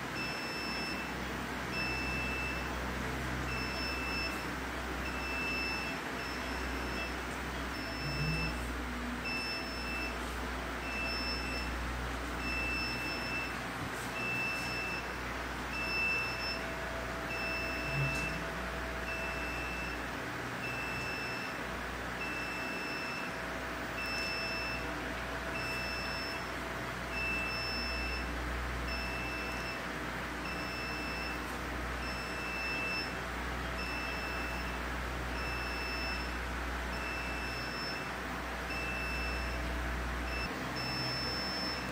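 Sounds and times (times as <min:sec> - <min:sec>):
equipment hum and hiss: 0:00.0 - 0:41.9
high-pitched electronic beep: 0:07.8 - 0:08.7, 0:17.3 - 0:18.4.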